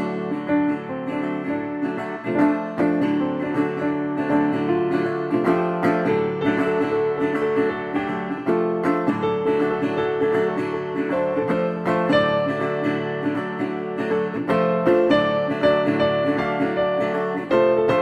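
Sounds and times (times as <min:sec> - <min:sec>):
acoustic guitar music: 0:00.0 - 0:18.0.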